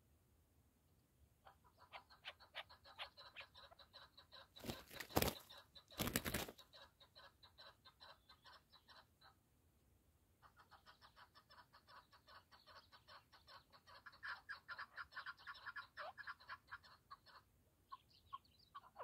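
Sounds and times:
partridge clucking calls: 0:01.4 - 0:09.4, 0:10.4 - 0:19.0
bird wings flapping: 0:04.6 - 0:06.6.

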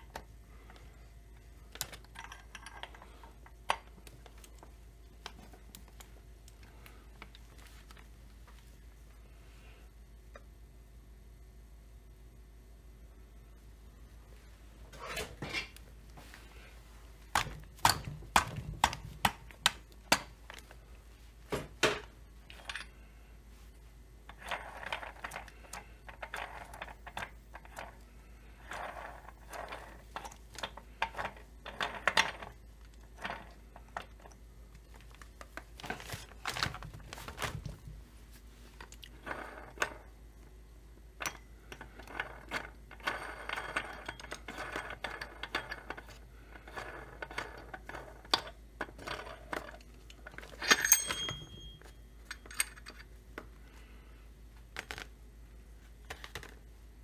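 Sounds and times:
small metal parts clicking and clinking: 0:01.7 - 0:04.6, 0:41.2 - 0:53.1
ringing metal clank: 0:50.6 - 0:52.0.

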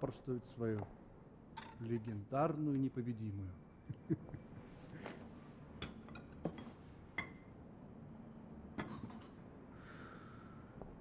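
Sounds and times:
glassware and dishes clinking: 0:08.8 - 0:09.4.

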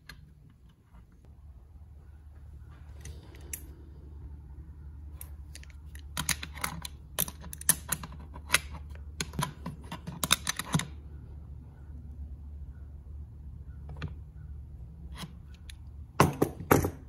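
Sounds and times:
low hum: 0:00.0 - 0:16.2.

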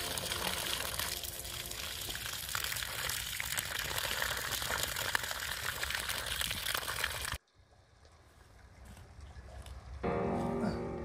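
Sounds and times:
water running: 0:00.0 - 0:07.4.

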